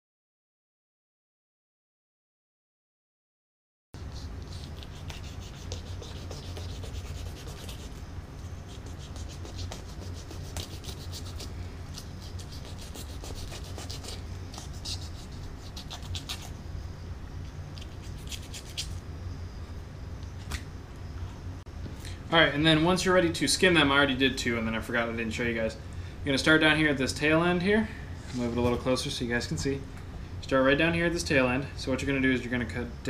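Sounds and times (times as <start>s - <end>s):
knife scraping fish flesh: 4.4s - 16.6s, 17.8s - 19.0s.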